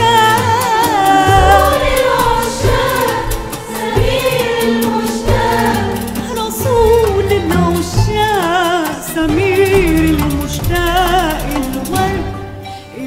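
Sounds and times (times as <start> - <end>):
frame drums beating: 0.0 - 12.4
woman singing with vibrato: 0.0 - 13.0.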